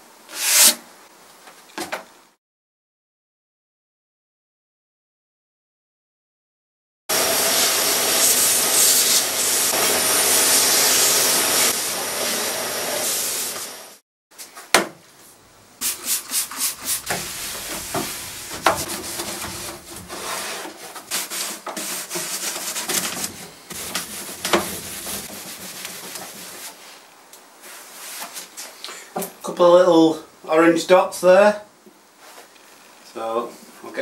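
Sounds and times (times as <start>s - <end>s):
shop vacuum running: 7.1s - 14.0s, 15.8s - 20.7s, 22.9s - 26.5s
cloth rubbing over wood: 15.8s - 28.5s
sharp wooden knocks: 17.0s - 20.1s.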